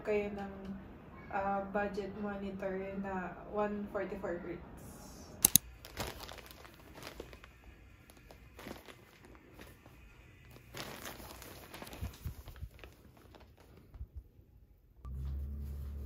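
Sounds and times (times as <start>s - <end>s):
sharp clicks: 5.4s - 5.6s
plastic wrapping crinkling: 5.5s - 14.1s.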